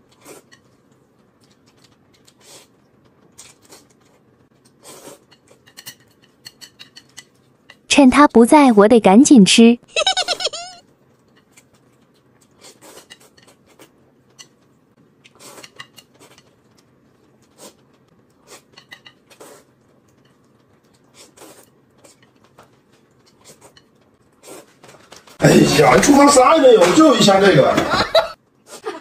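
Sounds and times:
chewing: 0.0 - 7.8, 11.1 - 25.1
slurping noodles: 2.3 - 2.8, 4.7 - 5.4, 15.3 - 16.4, 19.3 - 19.8, 21.0 - 22.2.

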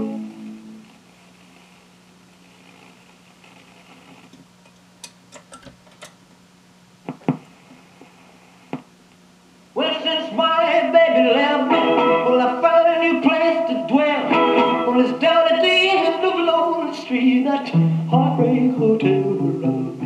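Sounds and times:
rock and roll record playing: 0.0 - 0.9, 9.8 - 20.0
guitar: 0.0 - 1.0, 9.7 - 20.0
man singing: 9.8 - 20.0.

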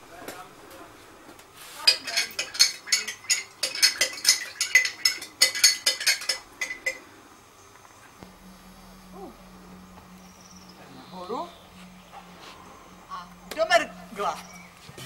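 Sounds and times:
metal spoon clinking on pot: 1.9 - 7.0.

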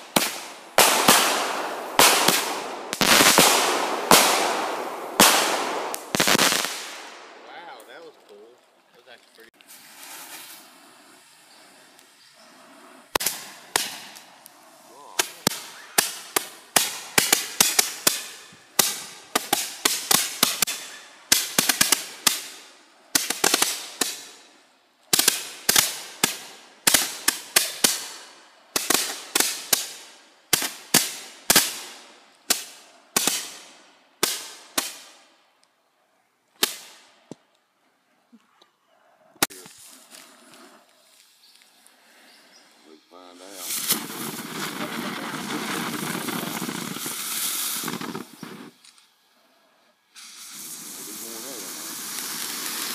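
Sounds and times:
fireworks banging and crackling: 0.0 - 35.3, 36.6 - 37.5, 42.7 - 49.0, 50.2 - 52.9.

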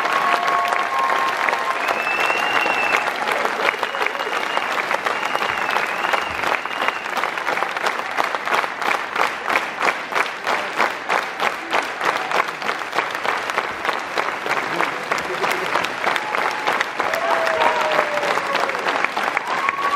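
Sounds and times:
crowd applauding and cheering: 0.0 - 19.9
rhythmic clapping in unison: 0.0 - 19.9
high whistle: 1.8 - 3.1, 3.8 - 7.2.

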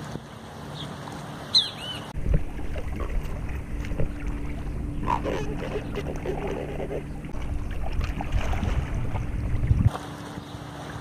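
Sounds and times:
wind on microphone: 2.2 - 10.0
river water lapping on rocks: 2.2 - 11.0.

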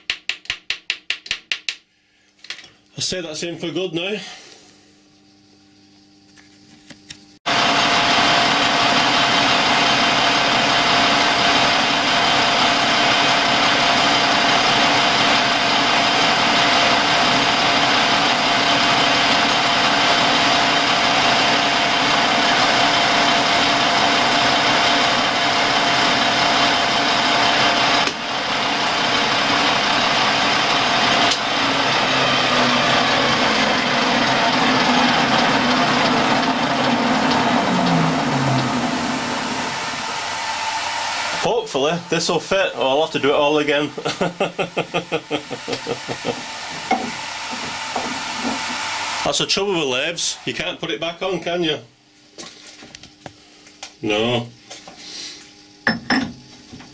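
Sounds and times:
metal lathe running with high whine: 7.5 - 51.8.

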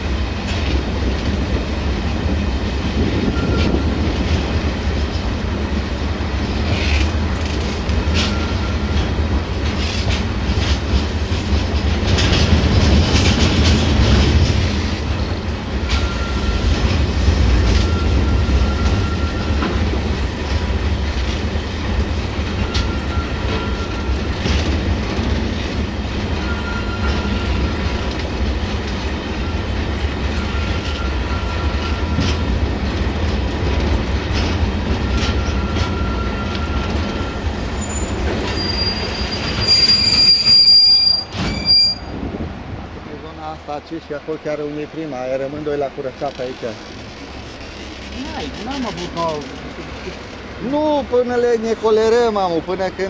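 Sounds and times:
train rumbling on track: 0.0 - 53.0
train wheel squeals: 3.2 - 4.2, 6.6 - 7.2, 7.9 - 9.2, 15.8 - 19.9, 22.5 - 24.8, 26.3 - 28.0, 29.3 - 32.5, 34.9 - 42.2.

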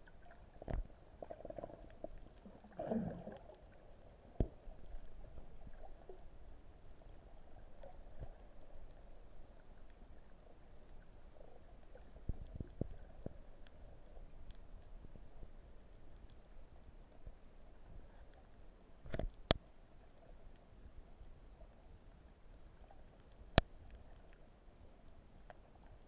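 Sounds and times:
underwater rumble of moving water: 0.0 - 26.0
underwater clicks and knocks: 0.6 - 2.2, 4.4 - 5.8, 19.1 - 19.7.

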